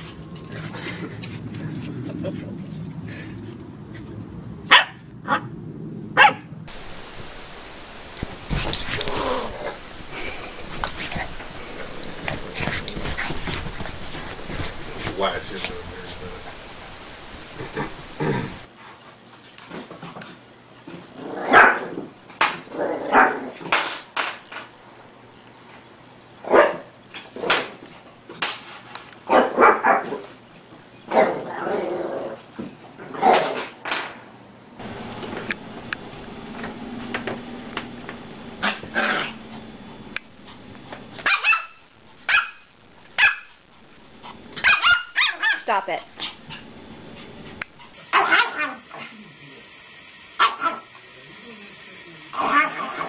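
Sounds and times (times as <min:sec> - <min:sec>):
puppy barking: 0:04.7 - 0:05.5, 0:06.2 - 0:06.5, 0:26.5 - 0:26.9, 0:29.3 - 0:30.2, 0:41.2 - 0:43.6, 0:44.6 - 0:45.6, 0:48.1 - 0:48.8, 0:50.4 - 0:50.9
scuffling noise: 0:08.2 - 0:16.6.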